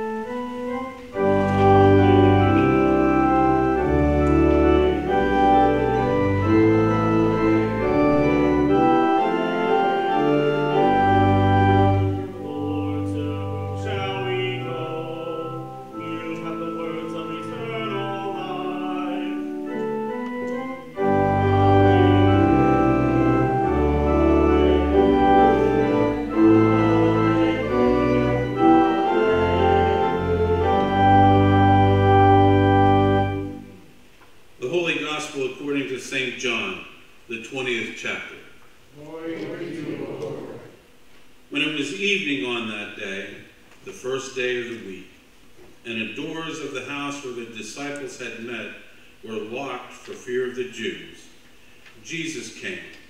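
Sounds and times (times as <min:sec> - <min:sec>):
wavering high organ line: 0:00.0 - 0:33.9
church organ chords: 0:00.0 - 0:36.7
deep organ pedal bass: 0:00.3 - 0:33.8.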